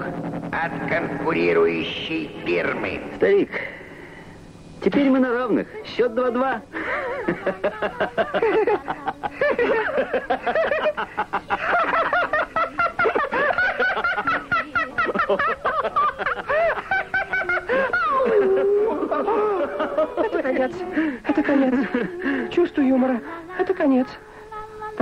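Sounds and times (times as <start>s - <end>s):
man laughing: 6.8s - 22.6s
robot voice laughing: 6.8s - 22.7s.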